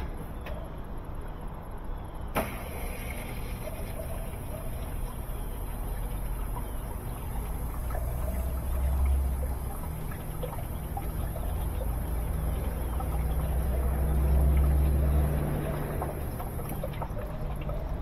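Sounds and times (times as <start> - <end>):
washing machine rumble: 2.4 - 18.0
water trickling in washing machine: 2.4 - 18.0.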